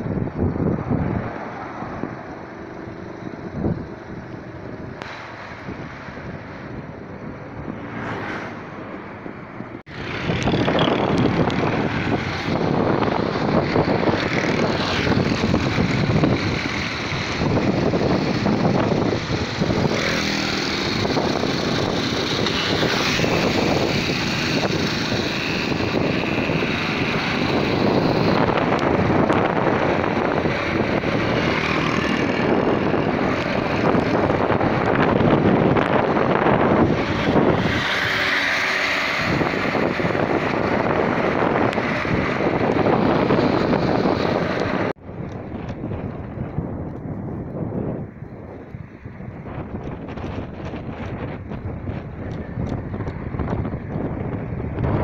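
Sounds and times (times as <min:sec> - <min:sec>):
wind rushing over microphone: 0:00.0 - 0:55.0
moped engine running: 0:09.6 - 0:47.0.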